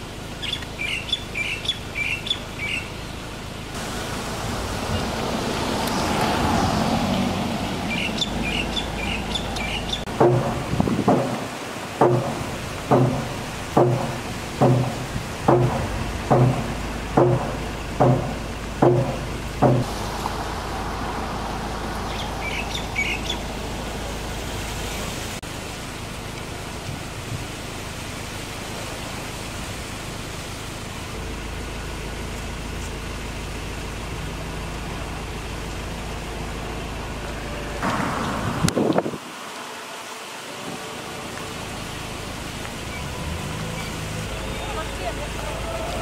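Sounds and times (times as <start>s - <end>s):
road traffic hum: 0.0s - 46.0s
pitched knocks: 10.1s - 19.9s.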